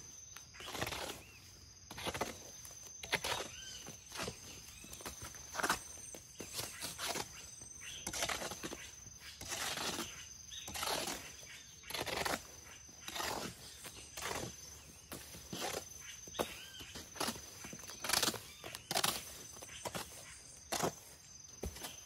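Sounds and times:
hoe scraping mortar: 0:00.6 - 0:22.0.

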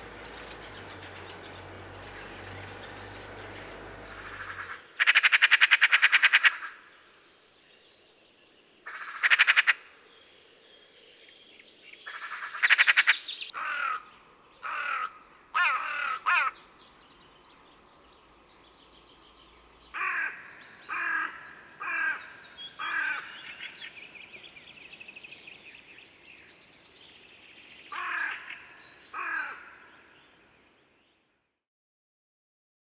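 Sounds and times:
magpie harsh rattling calls: 0:00.2 - 0:06.7, 0:12.7 - 0:14.0, 0:14.6 - 0:16.6, 0:20.0 - 0:23.3.

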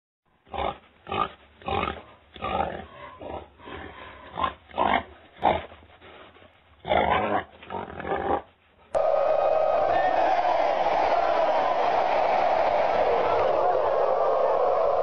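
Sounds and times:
hog grunting: 0:00.5 - 0:05.8.

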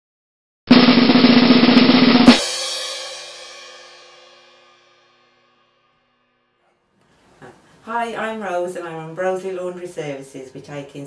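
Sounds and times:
snare drum roll: 0:00.7 - 0:04.2
cymbal crash: 0:00.7 - 0:05.9.

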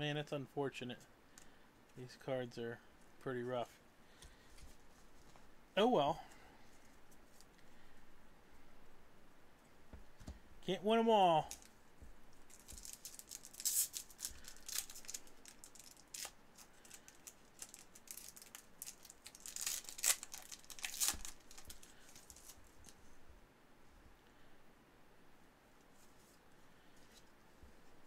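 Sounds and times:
trading cards being shuffled: 0:12.5 - 0:23.0.

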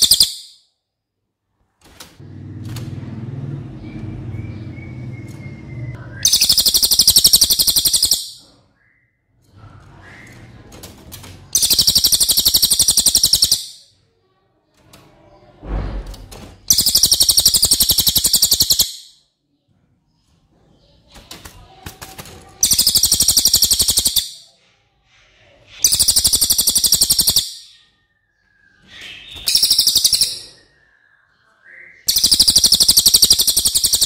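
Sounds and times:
songbird rapid trill: 0:00.0 - 0:00.6, 0:06.2 - 0:08.4, 0:11.6 - 0:13.8, 0:16.7 - 0:19.2, 0:22.6 - 0:24.5, 0:25.8 - 0:27.8, 0:29.0 - 0:30.8, 0:32.0 - 0:34.0.

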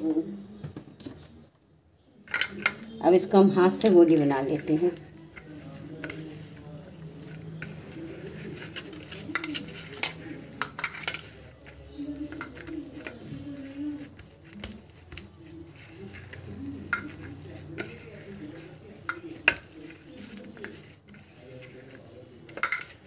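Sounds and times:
soft squishing and scraping: 0:02.3 - 0:23.0.

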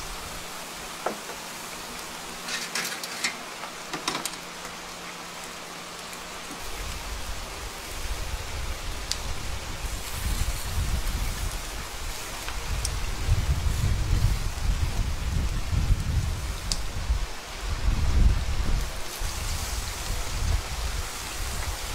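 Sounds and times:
chicken sizzling on a grill: 0:00.0 - 0:21.9
crackles and pops: 0:08.6 - 0:17.1.

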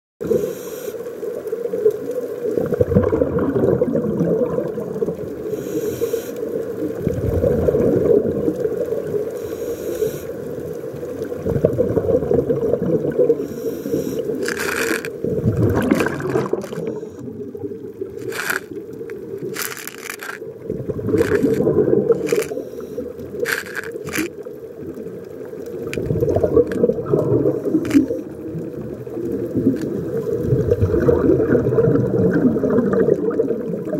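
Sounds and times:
muffled underwater water rush: 0:00.2 - 0:33.9.

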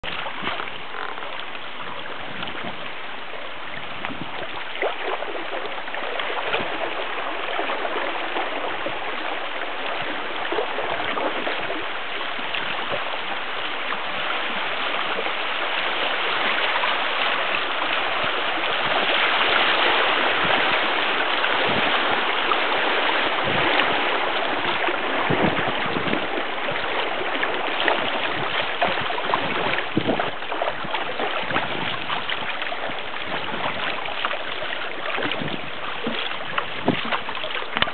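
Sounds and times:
creek rapids rushing: 0:00.0 - 0:37.9
paddle splashes: 0:00.0 - 0:37.9.

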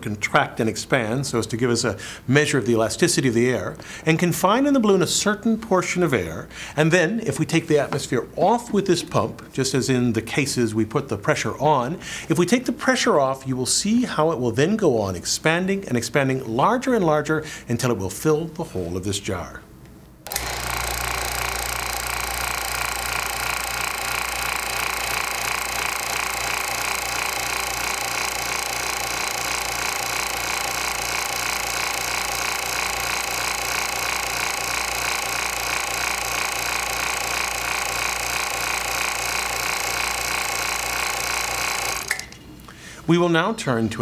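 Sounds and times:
vacuum pump running: 0:20.2 - 0:42.4.

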